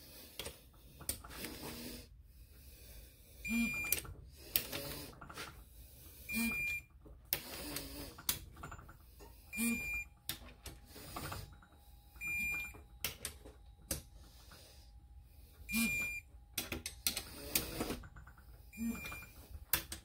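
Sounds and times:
torque wrench short beeps: 3.5 - 4.0, 6.3 - 6.9, 9.5 - 10.1, 15.7 - 16.3, 18.7 - 19.4.

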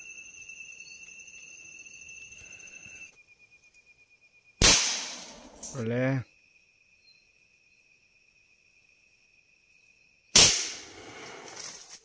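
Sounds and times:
insects trilling: 0.0 - 12.0
loud gunshot: 4.6 - 5.5, 10.4 - 10.9.

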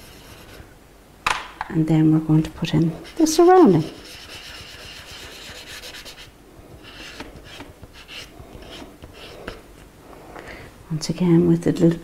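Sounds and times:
crayon scratching on paper: 0.0 - 0.6, 2.8 - 9.6.

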